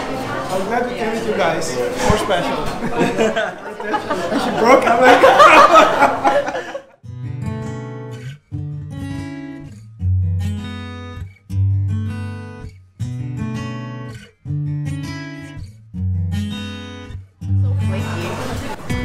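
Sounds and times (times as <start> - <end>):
acoustic guitar strumming chords: 7.0 - 19.0.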